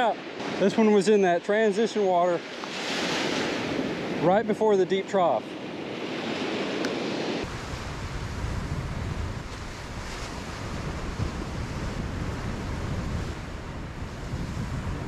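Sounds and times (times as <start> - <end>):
ocean surf breaking: 0.0 - 15.0
wind buffeting microphone: 5.6 - 15.0.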